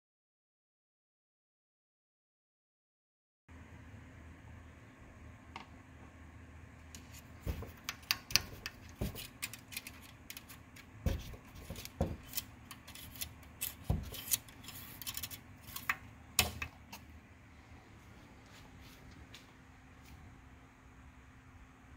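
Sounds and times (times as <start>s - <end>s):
metal dipstick scraping in tube: 7.0s - 16.0s.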